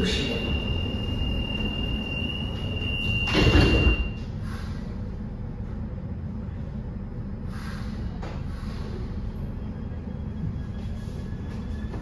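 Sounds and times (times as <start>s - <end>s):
steady high warning tone: 0.0s - 7.6s, 8.5s - 12.0s
low hum of train: 0.0s - 12.0s
train doors sliding shut: 3.0s - 4.1s.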